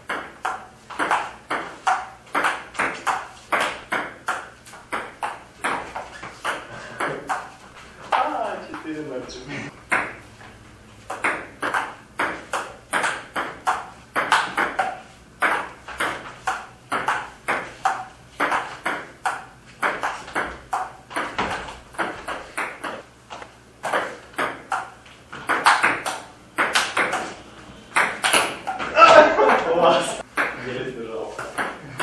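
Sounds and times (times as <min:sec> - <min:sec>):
ping-pong ball clicking: 0:00.1 - 0:05.8, 0:06.4 - 0:07.5, 0:09.9 - 0:10.2, 0:11.1 - 0:23.0, 0:23.8 - 0:27.3, 0:27.9 - 0:28.8.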